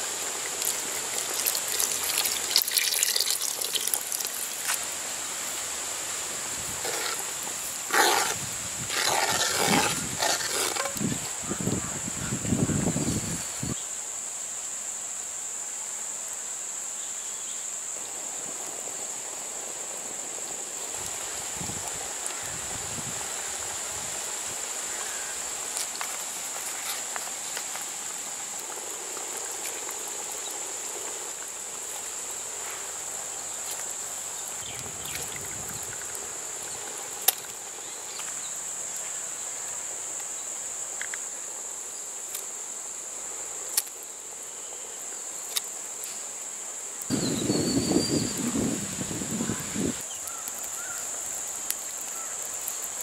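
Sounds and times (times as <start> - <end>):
insects chirring: 0.0 - 53.0.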